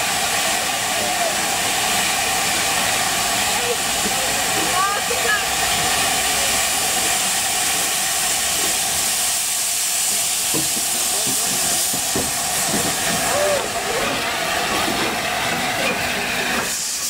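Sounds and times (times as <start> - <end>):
steam hissing from locomotive: 0.0 - 17.0.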